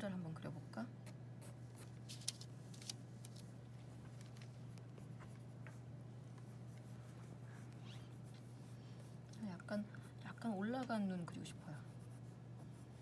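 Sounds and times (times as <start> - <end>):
low steady hum: 0.0 - 13.0
pencil scratching on paper: 6.4 - 9.2, 11.4 - 13.0.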